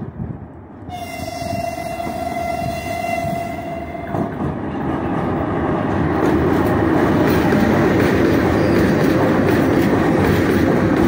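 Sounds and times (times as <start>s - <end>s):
freight train rumbling: 0.0s - 11.0s
locomotive horn blast: 0.9s - 4.3s.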